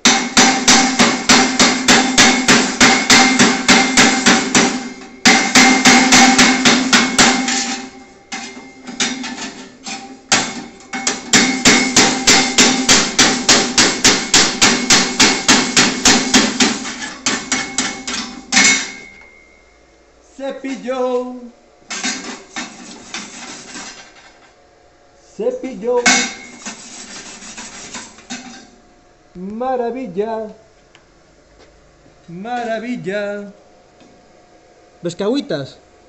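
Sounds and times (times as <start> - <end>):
hammer rapping on ringing steel: 0.0 - 19.5, 26.0 - 26.6.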